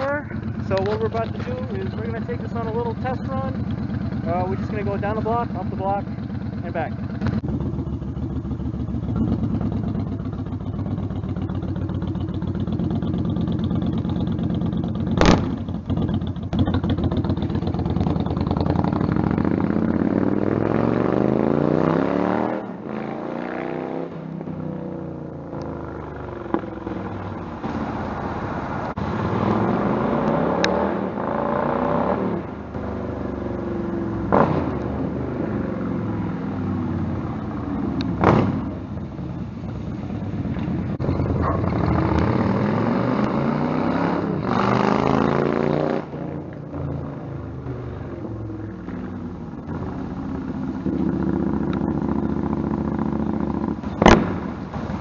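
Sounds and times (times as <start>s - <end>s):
motorcycle engine running: 0.0s - 21.7s, 31.1s - 55.0s
motorcycle riding by: 0.0s - 39.1s, 39.8s - 55.0s.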